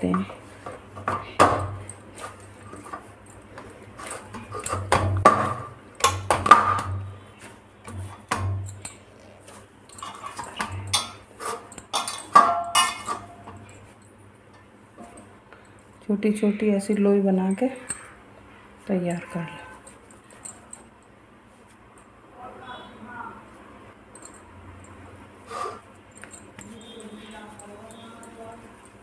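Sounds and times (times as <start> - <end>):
dough kneaded in metal bowl: 0.0 - 14.0.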